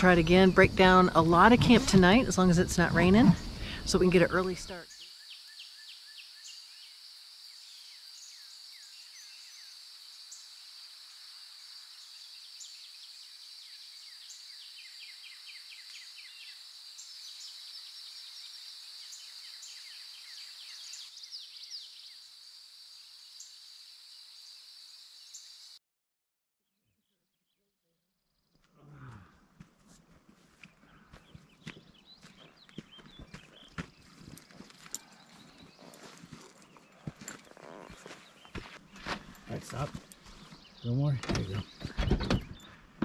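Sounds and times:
birds chirping: 0.0 - 10.5, 30.5 - 43.0
high insect drone: 0.1 - 25.8.

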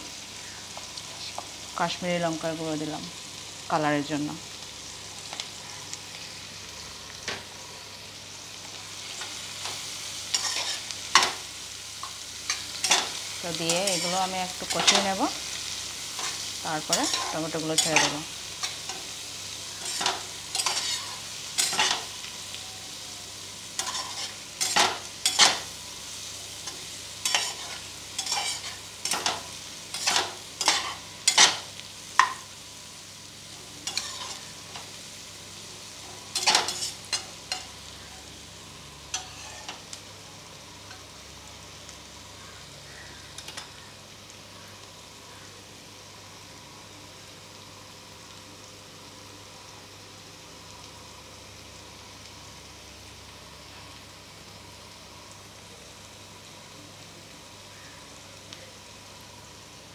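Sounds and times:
food sizzling in oil: 0.0 - 59.9
metal spatula scraping pot: 39.1 - 39.8.

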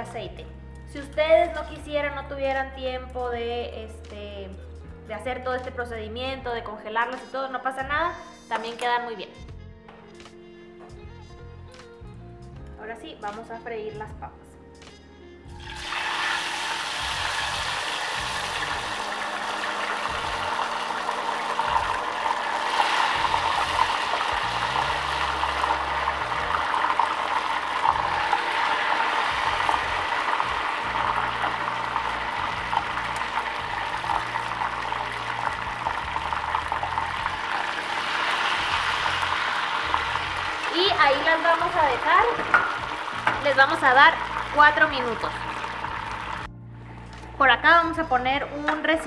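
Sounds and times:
potatoes sizzling in hot oil: 15.6 - 46.5.

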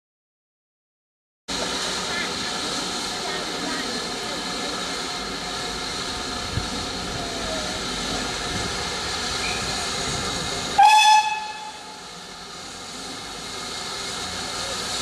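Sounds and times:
steam whistle: 10.8 - 12.0.

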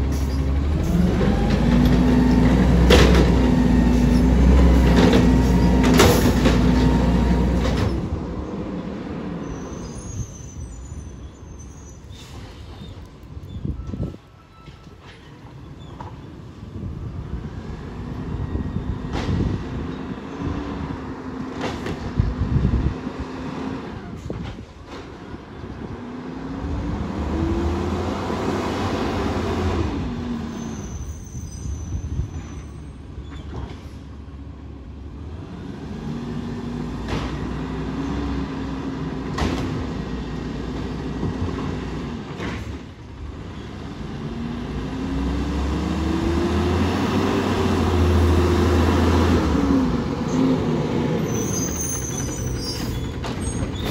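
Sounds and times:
truck engine revving: 0.0 - 8.0, 26.2 - 30.8, 43.4 - 52.9.

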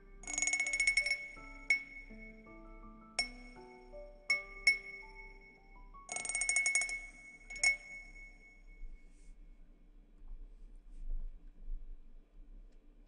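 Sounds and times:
gentle chime melody: 0.0 - 9.2.

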